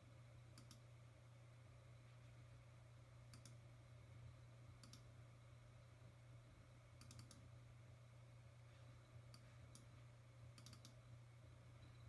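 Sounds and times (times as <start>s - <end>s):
low steady hum: 0.0s - 12.0s
computer mouse clicks: 0.5s - 0.9s, 3.3s - 3.6s, 4.8s - 5.1s, 7.0s - 7.5s, 9.3s - 9.9s, 10.5s - 11.0s.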